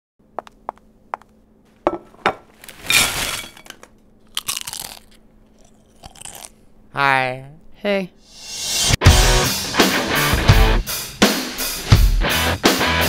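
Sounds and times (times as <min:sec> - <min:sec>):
tortilla chips crunching: 0:04.2 - 0:06.6.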